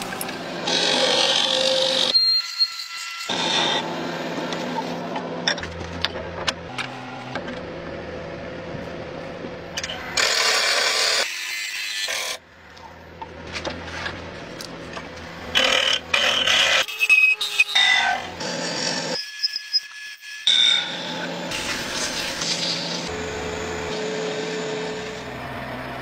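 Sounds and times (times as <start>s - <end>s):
lathe humming: 22.9s - 26.0s.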